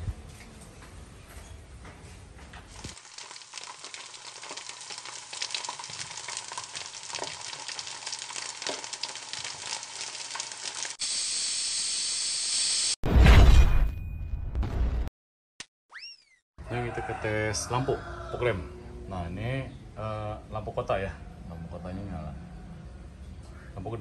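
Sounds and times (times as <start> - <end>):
crackling sizzling sound effect: 2.7 - 13.0.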